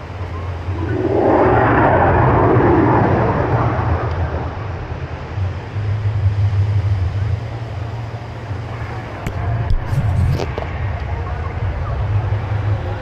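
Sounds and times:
aircraft flying past: 0:00.0 - 0:13.0
steady low rumble: 0:00.0 - 0:13.0.

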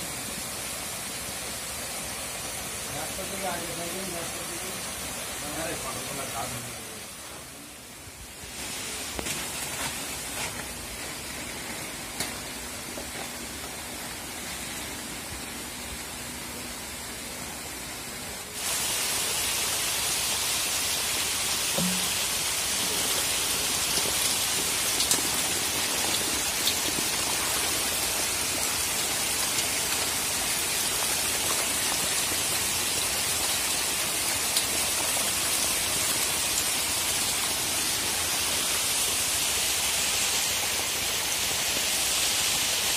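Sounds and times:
steady hiss: 0:00.0 - 0:42.9
fish splashing water: 0:21.7 - 0:36.4.

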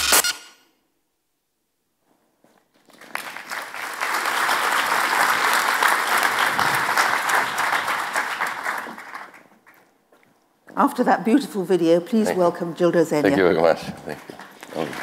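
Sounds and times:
audience applauding: 0:02.8 - 0:10.0, 0:13.7 - 0:15.0.

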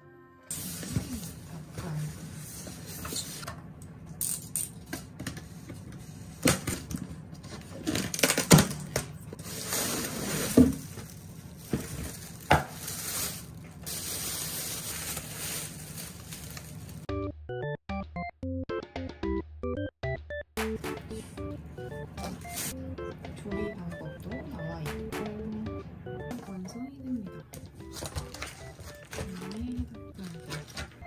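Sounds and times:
plastic bag crinkling: 0:09.4 - 0:17.1, 0:27.9 - 0:31.0
styrofoam box knocks and scrapes: 0:09.5 - 0:11.0.

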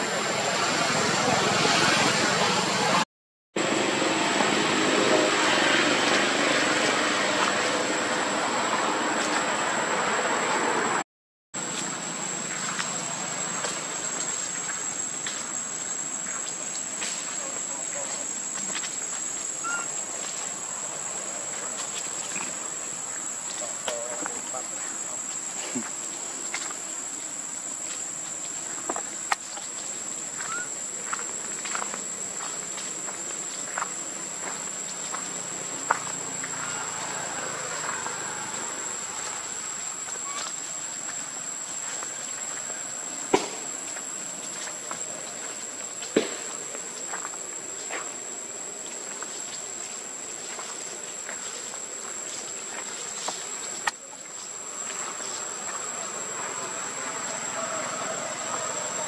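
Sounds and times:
insects droning: 0:00.0 - 0:03.0, 0:03.6 - 0:11.0, 0:11.6 - 0:59.0
dry leaves crackling: 0:11.6 - 0:59.0
rising chirp: 0:19.6 - 0:20.0.

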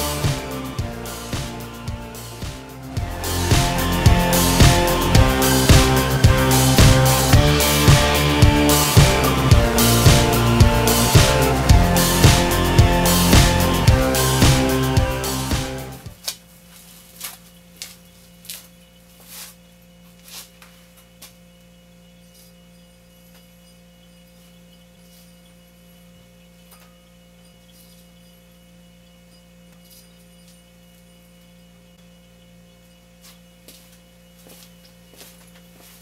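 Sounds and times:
electrical mains hum: 0:00.0 - 0:36.0.

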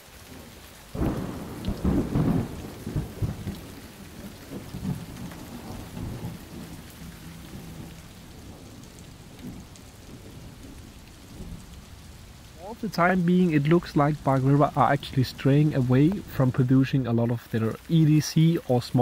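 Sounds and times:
rain on forest floor: 0:00.0 - 0:19.0.

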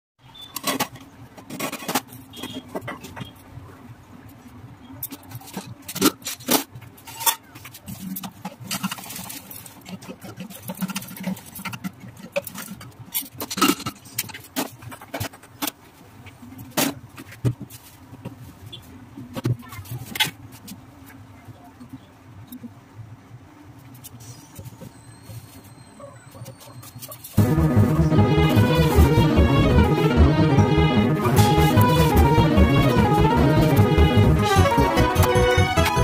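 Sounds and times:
low steady hum: 0:27.4 - 0:36.0.

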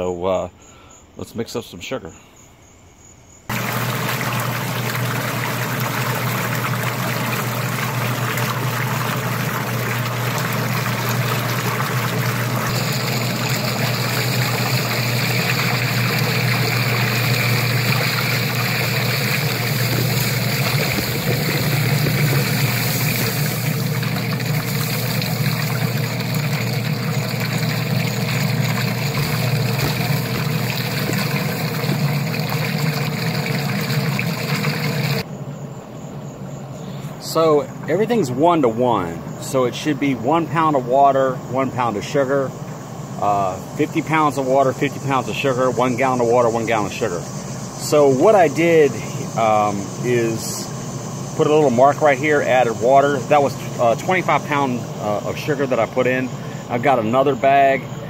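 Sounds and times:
water churning and splashing: 0:03.5 - 0:35.2
pump electric hum: 0:03.5 - 0:58.0.

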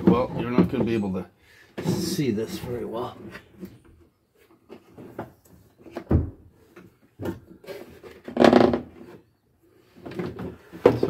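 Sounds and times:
knocks and rattles on wooden console: 0:00.0 - 0:01.2, 0:01.8 - 0:09.2, 0:09.9 - 0:11.0.

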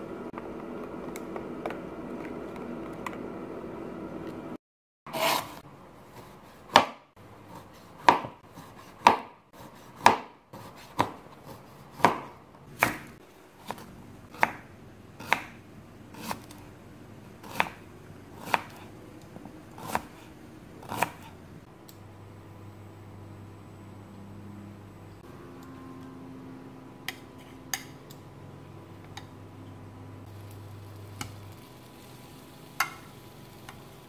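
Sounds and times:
knife slicing vegetables: 0:05.1 - 0:16.6, 0:17.4 - 0:19.0, 0:19.7 - 0:21.4.

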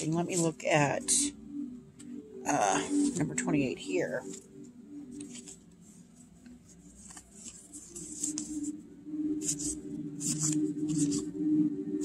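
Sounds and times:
faint low hum: 0:00.0 - 0:12.0
cards sliding and brushing: 0:05.2 - 0:08.7, 0:09.4 - 0:11.4.

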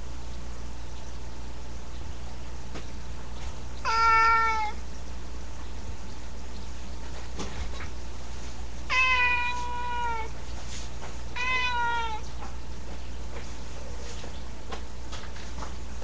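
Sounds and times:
cat meowing: 0:03.8 - 0:04.8, 0:08.9 - 0:10.4, 0:11.3 - 0:12.4.

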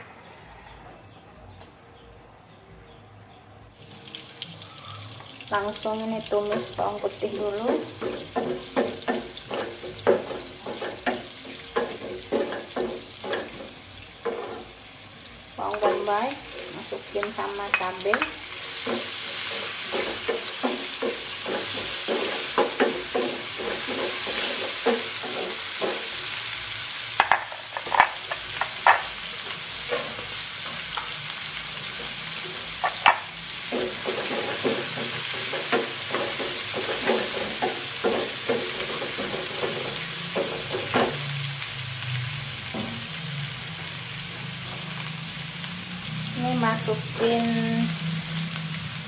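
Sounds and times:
vegetables sizzling in a frying pan: 0:03.8 - 0:49.0.

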